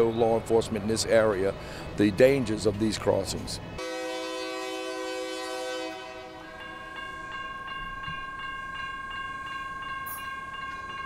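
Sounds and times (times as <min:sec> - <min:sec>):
locomotive air horn: 0:03.8 - 0:06.6
crossing warning bell ringing: 0:03.8 - 0:11.0.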